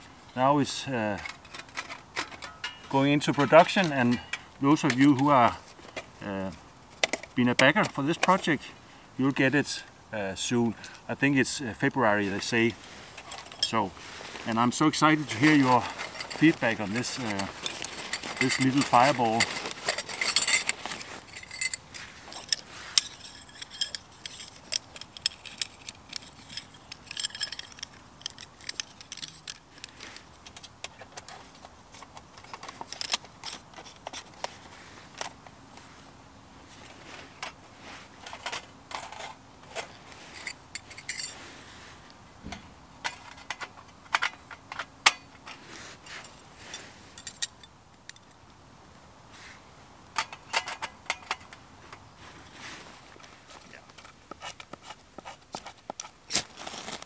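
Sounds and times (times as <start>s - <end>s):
metal fire bowl clinking: 1.1s - 5.6s, 13.2s - 29.9s, 40.2s - 41.4s.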